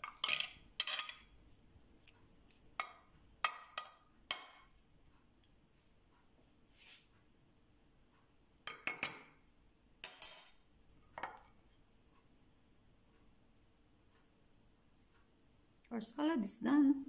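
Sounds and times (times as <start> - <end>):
spoon clinking against glass dish: 0.0 - 1.3, 8.7 - 9.4, 10.0 - 10.7.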